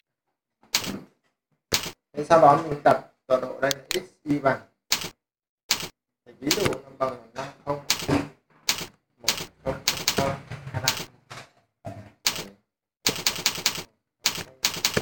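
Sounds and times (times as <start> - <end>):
keyboard keys typing: 0.7 - 1.0, 1.7 - 2.0, 4.9 - 6.8, 7.9 - 11.1, 12.2 - 15.0.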